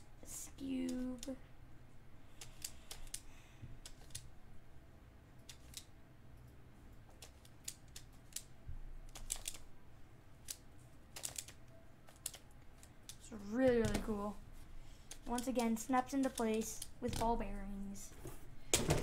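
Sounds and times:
plastic puzzle pieces clicking: 2.4 - 4.3, 5.5 - 5.9, 7.1 - 9.7, 10.4 - 14.1, 15.1 - 17.4.

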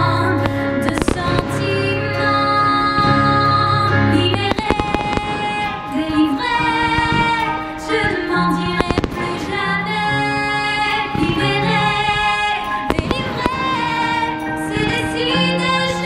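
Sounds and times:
song with singing voice: 0.0 - 16.0
fireworks popping and crackling: 4.3 - 9.6.

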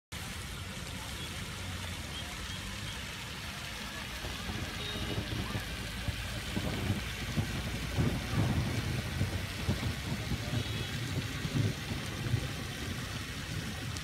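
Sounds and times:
fountain water spraying: 0.1 - 14.0
wind rumble on microphone: 3.0 - 14.0.

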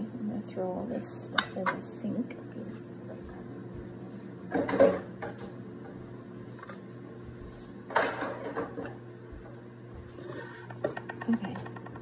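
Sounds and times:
steady low hum: 0.0 - 12.0
kitchen clatter in sink: 4.5 - 5.4, 7.9 - 9.0.

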